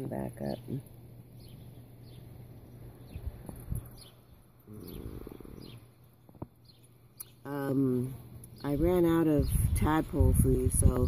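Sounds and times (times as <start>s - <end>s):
small bird chirping: 0.0s - 11.0s.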